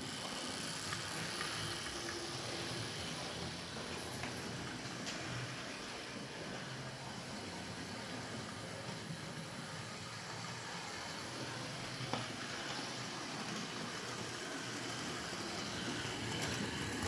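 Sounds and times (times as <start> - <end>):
model train motor hum: 0.0 - 17.0
wheels rumbling on rails: 0.0 - 17.0.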